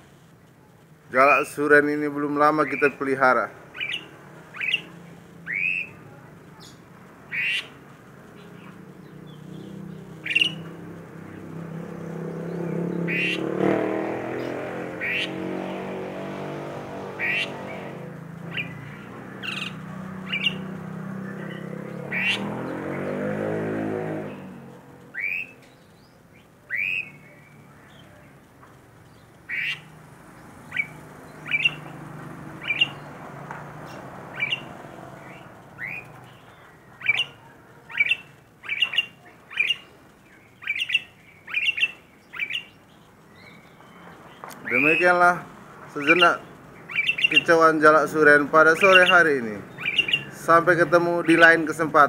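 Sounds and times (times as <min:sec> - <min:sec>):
starling squawking: 0:02.2 - 0:13.6, 0:14.2 - 0:23.5, 0:25.1 - 0:28.4, 0:29.0 - 0:33.2, 0:33.8 - 0:43.8, 0:44.6 - 0:52.0.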